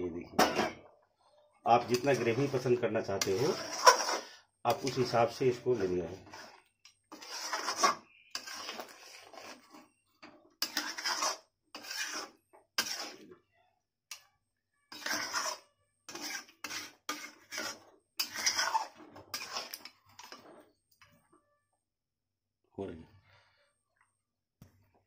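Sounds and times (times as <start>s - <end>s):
metal spoon scraping a pan: 1.7s - 13.4s, 14.9s - 21.2s.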